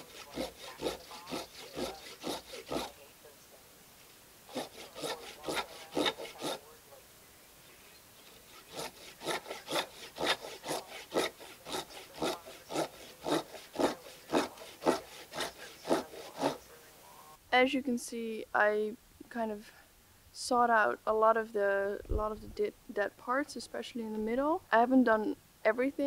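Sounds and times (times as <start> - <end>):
hand saw cutting wood: 0.0 - 3.0, 4.5 - 6.7, 8.3 - 16.8.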